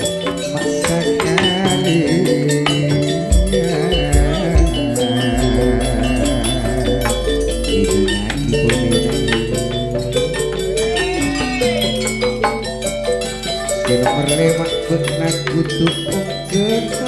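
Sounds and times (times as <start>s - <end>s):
gamelan ensemble playing: 0.0s - 17.0s.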